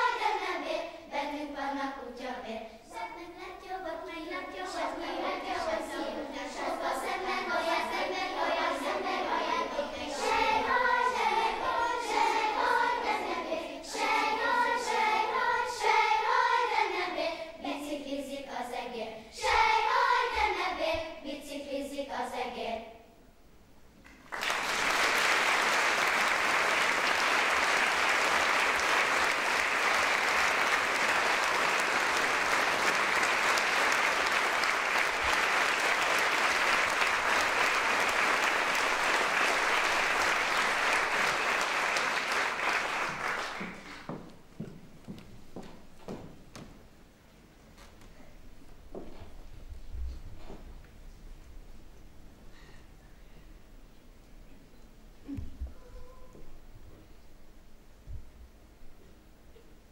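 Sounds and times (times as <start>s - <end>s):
choir singing: 0.0s - 22.9s, 25.2s - 43.2s
audience applause: 24.1s - 44.1s.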